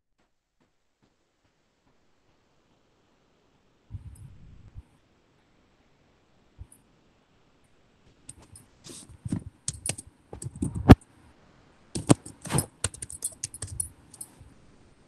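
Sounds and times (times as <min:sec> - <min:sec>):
typing on a computer keyboard: 0:09.6 - 0:11.0, 0:12.0 - 0:14.3.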